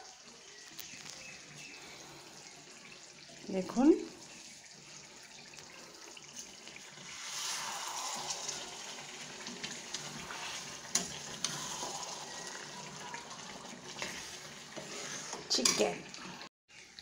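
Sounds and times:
curry sizzling and bubbling: 0:00.0 - 0:17.0.

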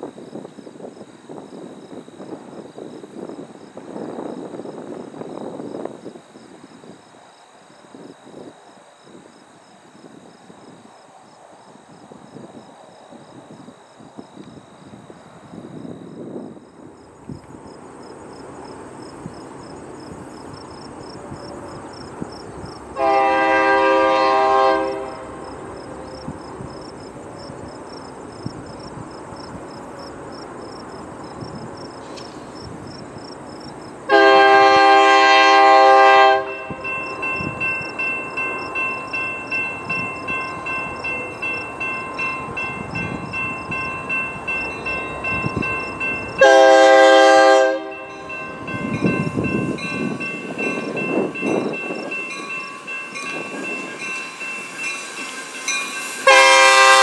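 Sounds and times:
crickets chirping: 0:00.0 - 0:57.0
locomotive air horn blasts: 0:23.0 - 0:25.6, 0:34.1 - 0:36.9, 0:46.4 - 0:48.7, 0:56.2 - 0:57.0
crossing warning bell ringing: 0:34.1 - 0:57.0.

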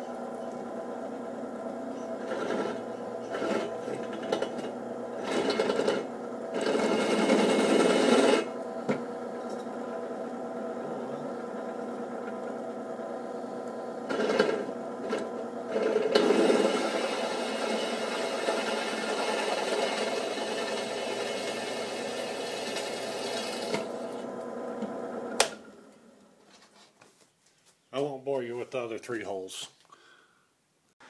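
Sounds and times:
drill press motor running: 0:00.1 - 0:25.6
drill bit cutting steel: 0:02.2 - 0:08.6, 0:14.1 - 0:24.1.

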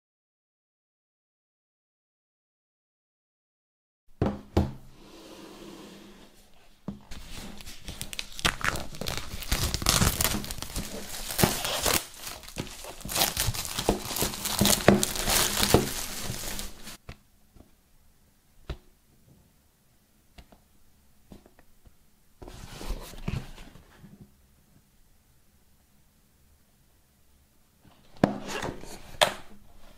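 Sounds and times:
knock: 0:04.2 - 0:04.8
plastic wrap crinkling and tearing: 0:07.1 - 0:17.0.

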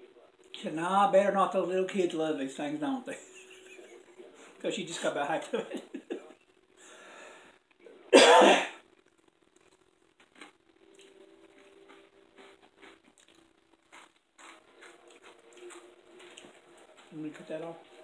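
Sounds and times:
man coughing: 0:08.1 - 0:08.8.

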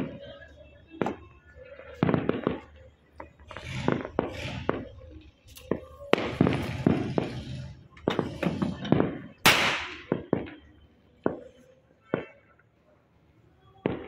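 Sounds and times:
firecrackers banging and crackling: 0:00.0 - 0:12.6
firework rushing hiss: 0:03.4 - 0:10.4.

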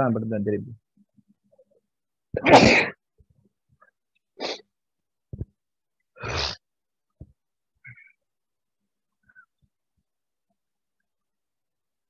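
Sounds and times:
person sneezing: 0:02.4 - 0:03.0, 0:04.4 - 0:04.6.

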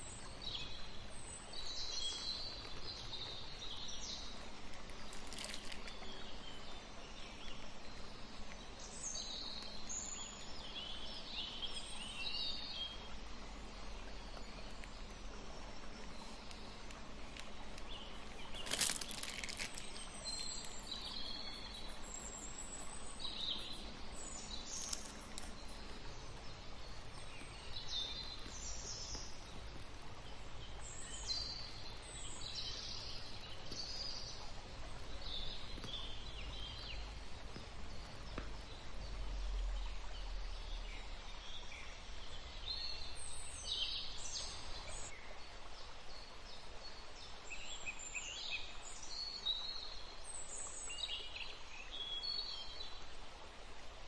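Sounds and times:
birds chirping: 0:00.0 - 0:41.6
faint low rumble: 0:00.0 - 0:42.7.

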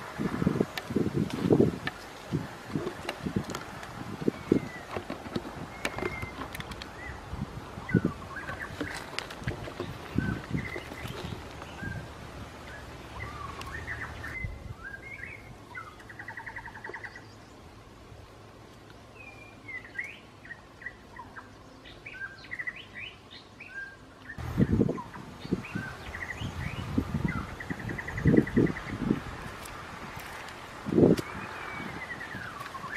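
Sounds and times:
digging in dry soil: 0:00.0 - 0:17.1, 0:27.9 - 0:32.9
small birds chirping and trilling: 0:00.2 - 0:18.0, 0:18.9 - 0:32.9.

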